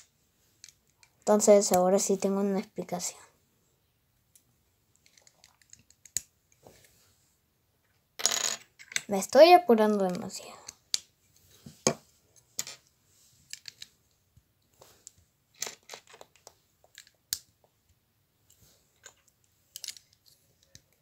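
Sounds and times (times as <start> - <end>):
plastic bricks clicking together: 5.0 - 6.3.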